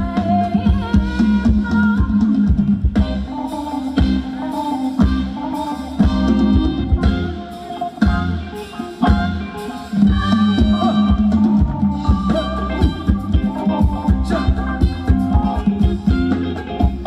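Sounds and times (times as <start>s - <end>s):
live band playing dance music: 0.0s - 17.0s
steady drum beat: 0.0s - 17.0s.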